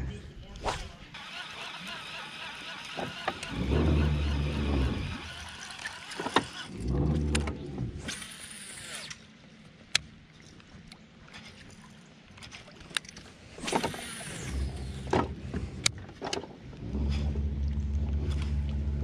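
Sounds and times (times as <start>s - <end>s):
fishing reel whirring: 1.2s - 7.4s, 8.0s - 9.2s
boat motor humming: 1.3s - 8.1s, 13.6s - 19.0s.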